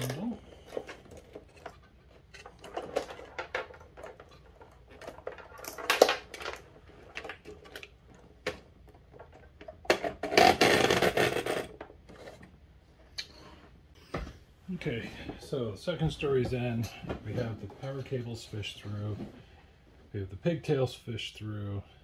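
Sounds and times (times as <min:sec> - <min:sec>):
hands handling wires rustling: 0:00.0 - 0:10.0.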